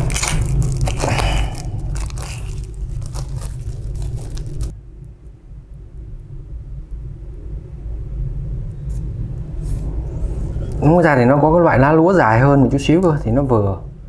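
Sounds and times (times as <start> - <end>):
plastic film crinkling and peeling: 0.0 - 4.7
low hum: 0.0 - 14.0.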